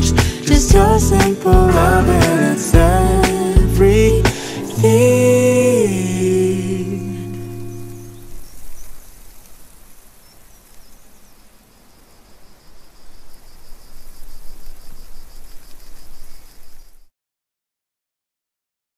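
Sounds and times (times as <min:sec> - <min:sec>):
steady hiss: 0:01.2 - 0:17.1
insect chirping: 0:01.7 - 0:17.1.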